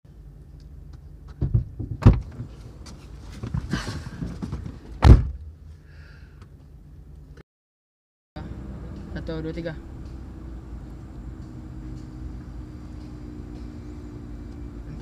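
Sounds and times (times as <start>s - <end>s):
rustling and knocks in car seats: 1.2s - 5.4s
car door shutting: 1.3s - 5.5s.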